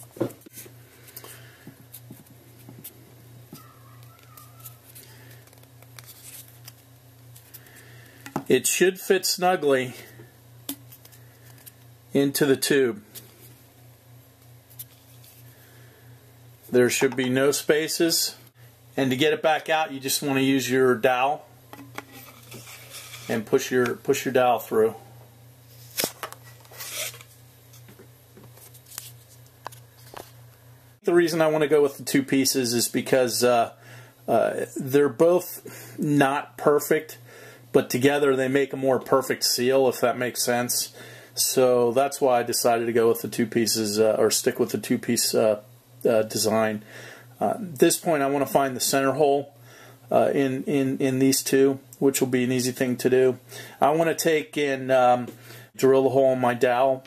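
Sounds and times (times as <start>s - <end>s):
soft handling clicks and rubs: 0.0s - 7.7s
steady low hum: 0.0s - 57.0s
rubbing scrape: 22.1s - 23.4s, 26.7s - 27.2s.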